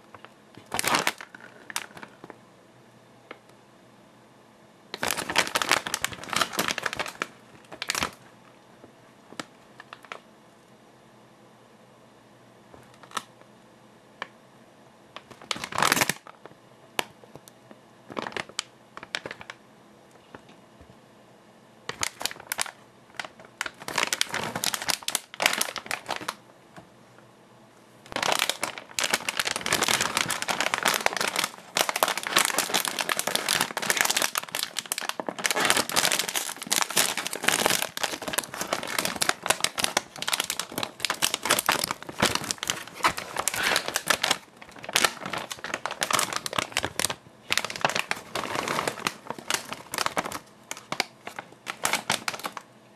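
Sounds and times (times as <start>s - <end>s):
plastic snack bag crinkling: 0.0s - 2.4s, 4.9s - 8.3s, 9.4s - 10.2s, 12.8s - 13.3s, 15.2s - 16.5s, 18.1s - 19.6s, 21.9s - 26.4s, 28.1s - 52.7s.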